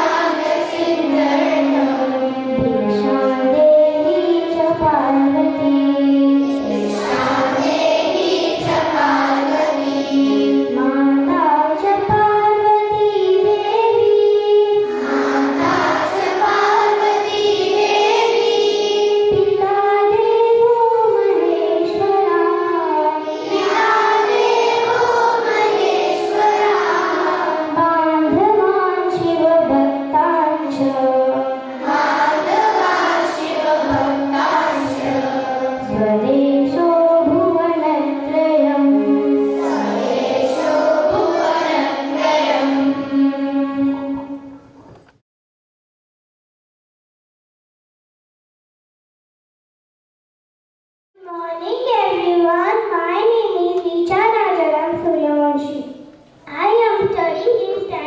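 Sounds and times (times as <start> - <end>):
girls singing in unison: 0.0 - 44.4.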